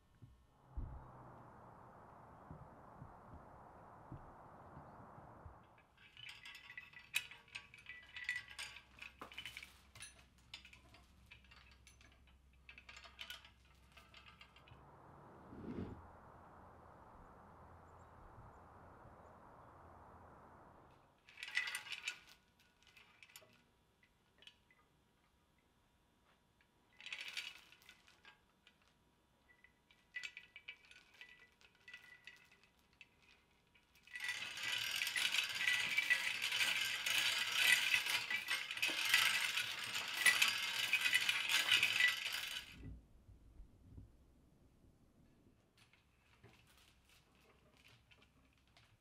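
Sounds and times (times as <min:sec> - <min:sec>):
steel chains clinking and rattling: 0:05.7 - 0:14.8, 0:21.2 - 0:24.8, 0:26.9 - 0:42.8.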